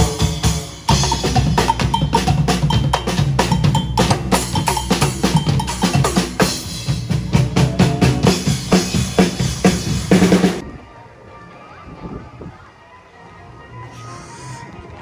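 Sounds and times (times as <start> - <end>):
percussion band drumming: 0.0 - 10.6.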